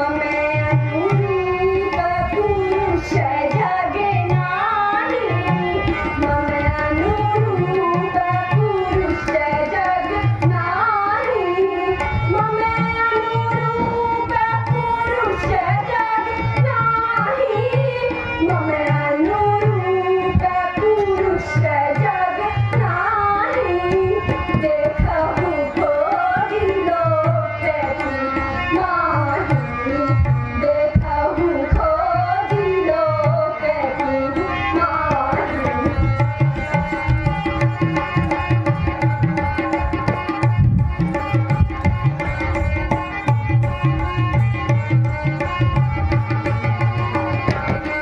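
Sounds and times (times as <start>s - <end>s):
tabla drumming: 0.0s - 48.0s.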